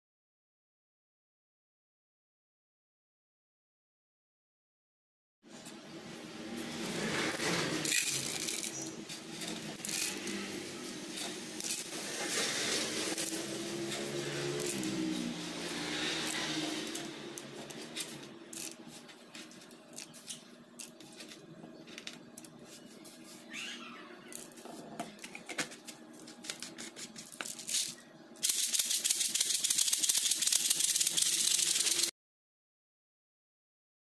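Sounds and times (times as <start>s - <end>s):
beads poured into plastic tube: 7.4s - 10.4s, 27.4s - 32.1s
bead shaker rattling: 7.8s - 21.4s, 26.9s - 32.1s.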